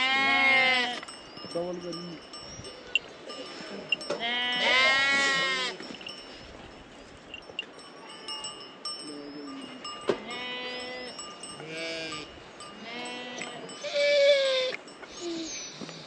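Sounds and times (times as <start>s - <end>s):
sheep bleating: 0.0s - 1.0s, 4.2s - 5.8s, 10.2s - 14.7s
small bells ringing: 0.6s - 16.0s.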